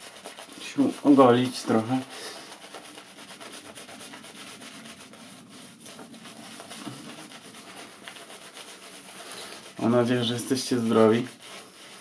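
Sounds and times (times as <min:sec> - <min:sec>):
shaving brush rubbing on stubble: 0:00.0 - 0:12.0.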